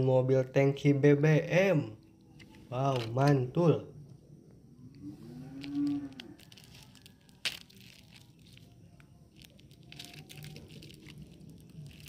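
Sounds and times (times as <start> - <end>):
plastic bag crinkling: 5.4 - 12.0
sharp crack: 7.3 - 8.4.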